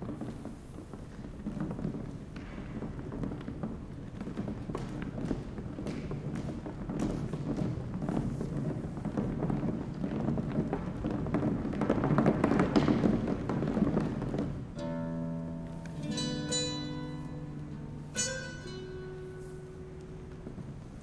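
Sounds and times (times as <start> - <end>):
nylon-string guitar plucked notes: 14.8 - 20.9.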